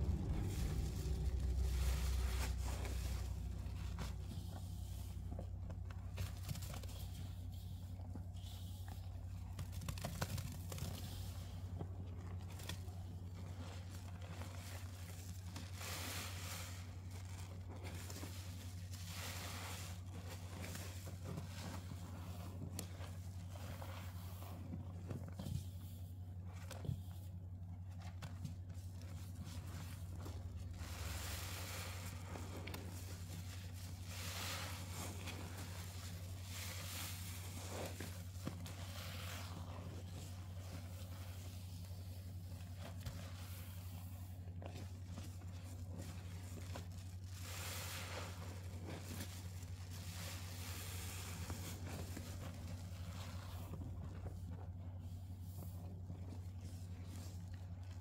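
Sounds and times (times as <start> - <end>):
steady low hum: 0.0 - 58.0
wet sponge squishes: 0.0 - 58.0.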